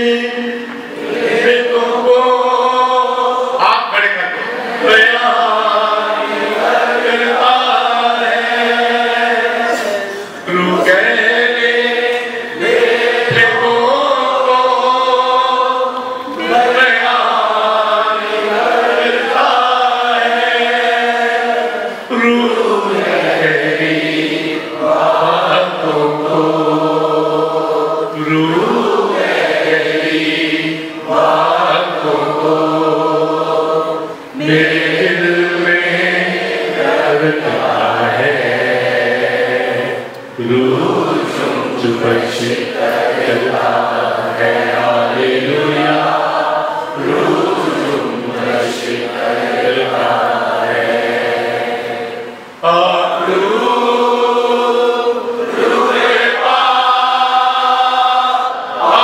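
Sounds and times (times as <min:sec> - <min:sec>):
man singing a devotional chant: 0:00.0 - 0:00.8, 0:01.4 - 0:06.3, 0:06.9 - 0:18.3, 0:19.0 - 0:33.4, 0:34.4 - 0:39.2, 0:40.4 - 0:46.2, 0:52.6 - 0:54.8.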